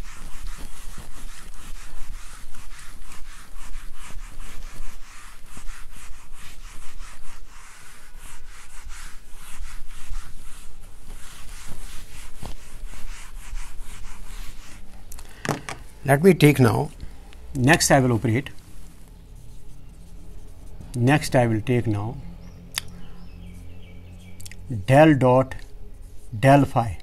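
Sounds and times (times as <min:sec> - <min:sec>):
duster scrubbing whiteboard: 0:00.0 - 0:14.9.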